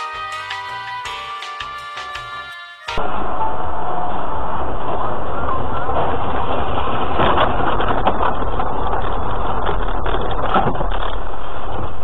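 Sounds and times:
car engine and tyre noise: 0:03.0 - 0:12.0.

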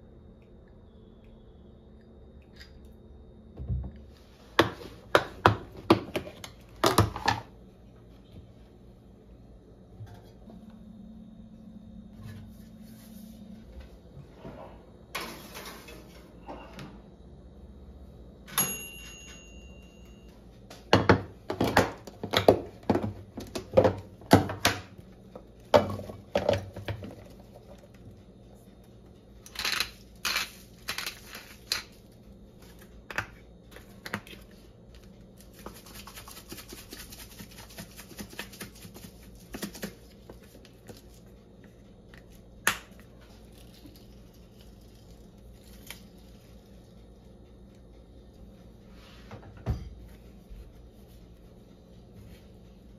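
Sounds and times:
plastic containers and plate clattering: 0:25.7 - 0:27.8
seasoning shaker rasping: 0:35.4 - 0:41.3.

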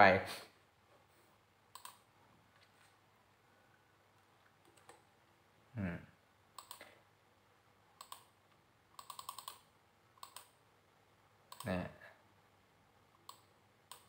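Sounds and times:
computer mouse clicks: 0:01.7 - 0:02.1, 0:04.4 - 0:05.1, 0:06.6 - 0:07.0, 0:08.0 - 0:10.6, 0:11.5 - 0:11.8, 0:13.1 - 0:14.0.

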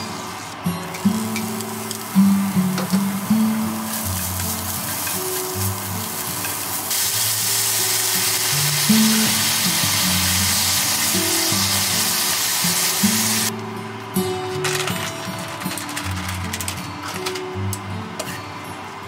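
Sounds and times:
soft background music: 0:00.0 - 0:19.0
vegetables sizzling in a frying pan: 0:00.9 - 0:13.5.

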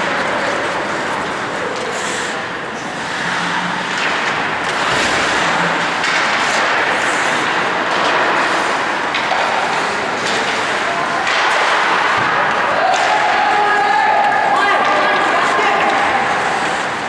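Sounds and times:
skates scraping on ice: 0:00.0 - 0:17.0.

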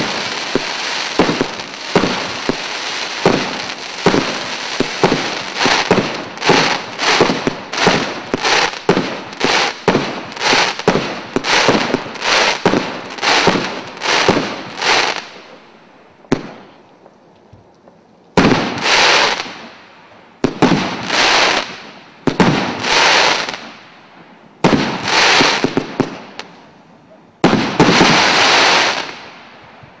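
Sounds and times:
big firework bursts: 0:00.0 - 0:15.6, 0:18.4 - 0:26.6, 0:27.4 - 0:30.0
fireworks shots: 0:00.0 - 0:15.6, 0:16.3 - 0:16.8, 0:18.4 - 0:19.8, 0:20.4 - 0:24.0, 0:24.6 - 0:26.6, 0:27.4 - 0:29.8.

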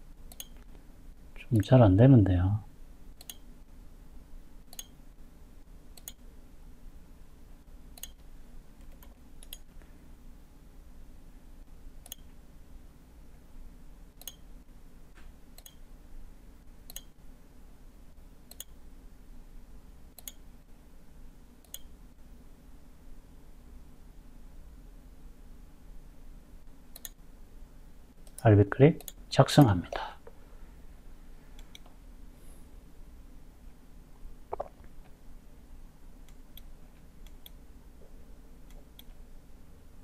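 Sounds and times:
faint low hum: 0:00.0 - 0:40.0
computer mouse clicking: 0:00.3 - 0:00.8, 0:03.2 - 0:03.4, 0:04.7 - 0:05.0, 0:06.0 - 0:06.2, 0:08.0 - 0:08.2, 0:08.8 - 0:09.7, 0:12.0 - 0:12.3, 0:14.2 - 0:14.4, 0:15.6 - 0:15.8, 0:16.9 - 0:17.1, 0:18.5 - 0:18.8, 0:20.2 - 0:20.4, 0:21.6 - 0:21.9, 0:26.9 - 0:27.2, 0:31.6 - 0:32.0, 0:36.2 - 0:37.6.

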